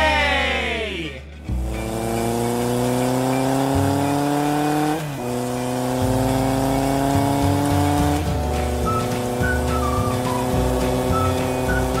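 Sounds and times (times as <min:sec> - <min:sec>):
motorcycle engine revving: 0:01.4 - 0:12.0.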